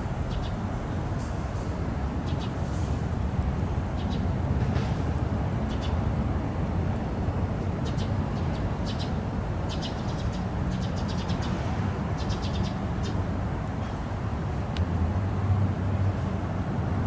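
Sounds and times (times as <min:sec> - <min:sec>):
distant traffic rumble: 0:00.0 - 0:17.0
small birds chirping: 0:00.3 - 0:00.6, 0:02.2 - 0:02.6, 0:03.9 - 0:04.3, 0:05.6 - 0:06.0, 0:07.8 - 0:13.3.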